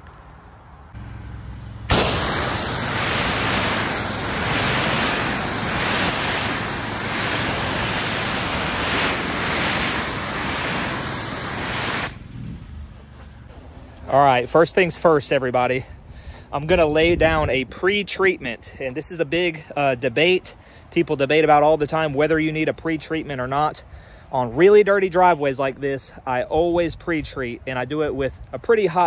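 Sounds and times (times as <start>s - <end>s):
pressure washer spray hissing: 1.9s - 12.4s.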